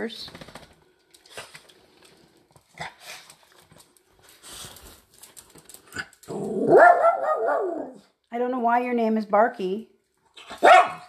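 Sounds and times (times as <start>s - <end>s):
dog claws clicking on tile: 0.3s - 6.7s.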